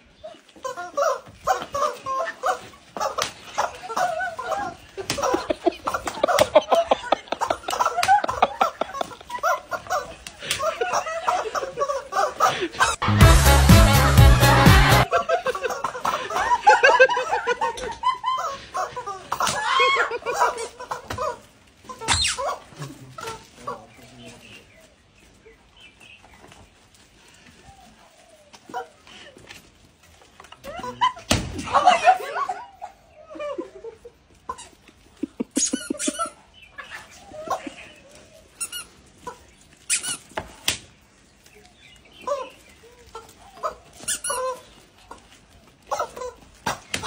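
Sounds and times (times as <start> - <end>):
rubber chicken toy squawking: 44.0 - 44.7.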